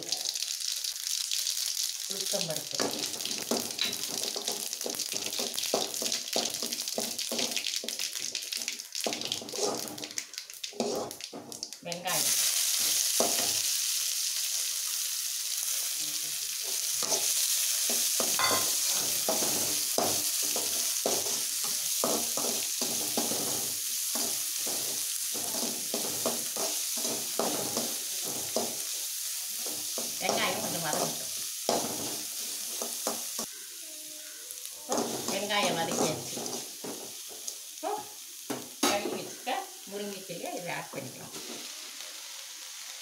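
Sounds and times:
onions sizzling in hot oil: 0.0 - 43.0
metal spoon scraping and stirring: 9.4 - 10.0, 10.8 - 11.2, 17.0 - 17.3, 34.9 - 37.0.

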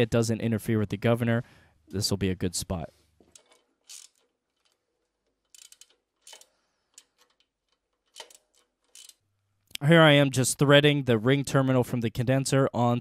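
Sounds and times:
small hand tools clicking and tapping: 3.2 - 9.2.

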